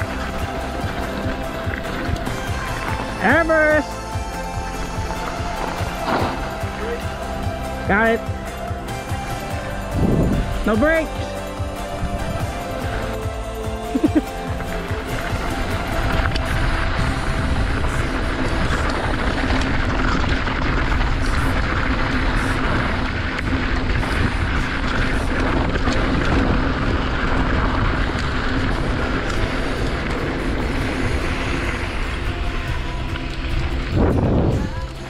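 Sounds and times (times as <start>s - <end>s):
bike tyres rolling on dirt: 0.0s - 35.0s
wind rushing over microphone: 9.8s - 11.0s, 11.6s - 12.9s, 15.0s - 35.0s.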